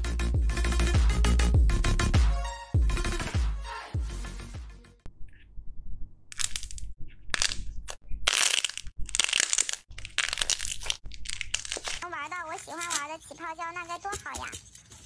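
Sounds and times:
slime crackling and popping: 8.2s - 12.0s.

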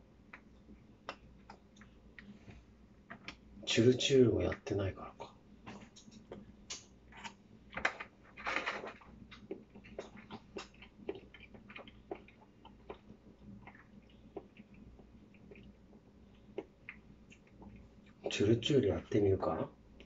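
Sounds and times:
person chewing: 5.2s - 7.4s, 8.8s - 18.3s.

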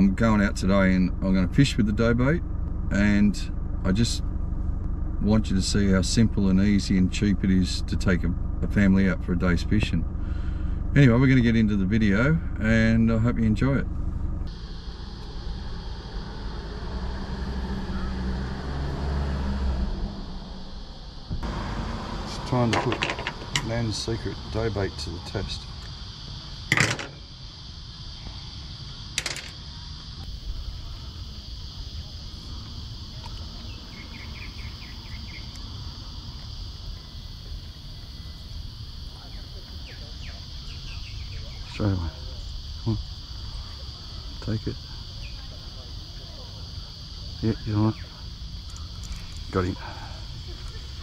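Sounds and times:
low rumble: 0.0s - 26.6s
car engine idling: 0.0s - 51.0s
insects droning: 0.0s - 51.0s.

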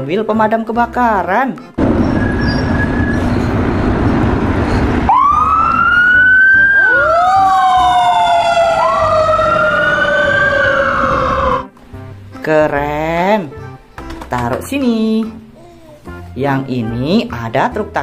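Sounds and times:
fire engine siren: 1.8s - 11.7s.

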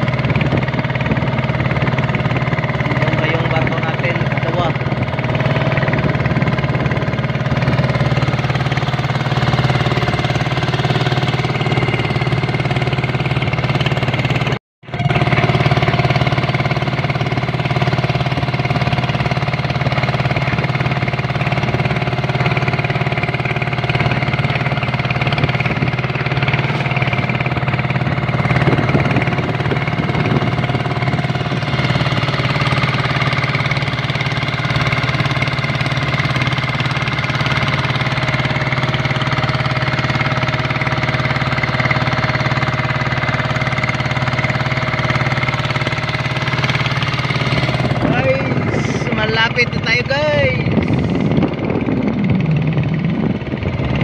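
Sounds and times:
boat engine chugging: 0.0s - 54.0s
water noise: 0.0s - 54.0s.

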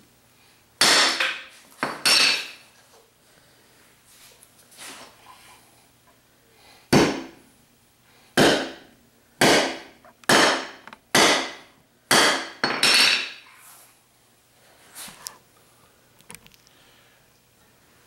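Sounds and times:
hammer striking metal on concrete: 9.4s - 13.4s.

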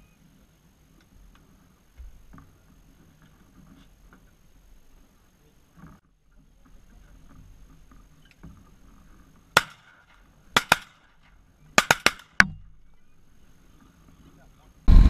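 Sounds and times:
shotgun shots: 9.6s - 12.4s.

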